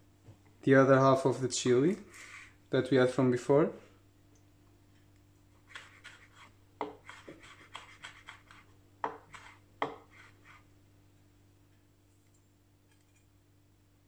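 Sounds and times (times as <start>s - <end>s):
knife chopping on wooden board: 5.7s - 10.4s.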